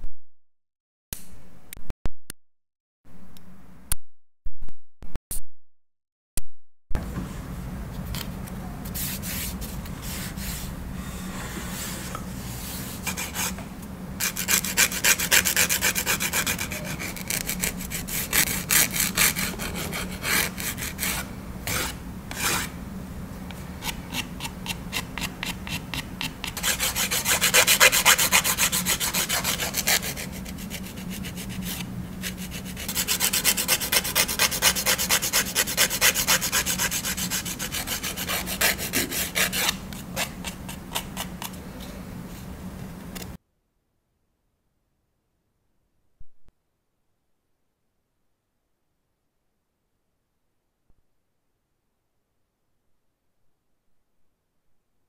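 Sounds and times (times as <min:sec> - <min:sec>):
nail file rubbing fingernails: 0:14.2 - 0:20.8.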